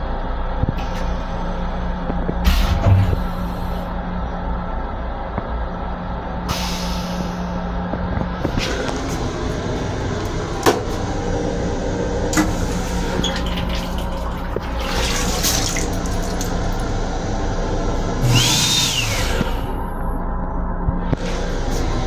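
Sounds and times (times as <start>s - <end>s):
railcar hum: 0.0s - 22.0s
faucet running into basin: 13.2s - 16.8s
hiss with rising whistle: 18.2s - 19.6s.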